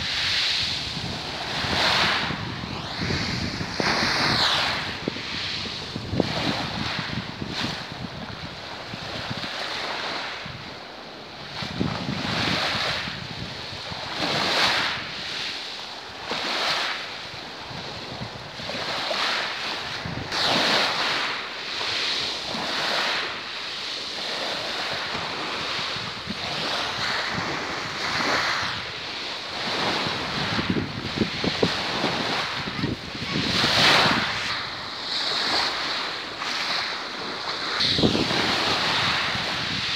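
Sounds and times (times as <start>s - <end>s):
waves washing over pebbles: 0.0s - 10.6s, 11.3s - 39.9s
wind buffeting microphone: 0.0s - 10.8s, 11.4s - 15.4s, 17.3s - 19.1s, 19.8s - 21.2s, 24.3s - 39.9s.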